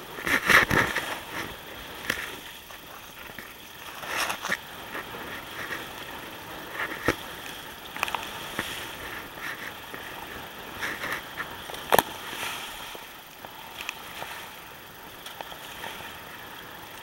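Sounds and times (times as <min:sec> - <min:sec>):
water rushing along a hull: 0:00.0 - 0:17.0.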